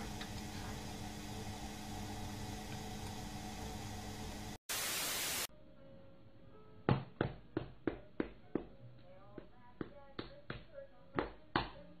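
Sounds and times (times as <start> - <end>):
washing machine humming: 0.0 - 4.6.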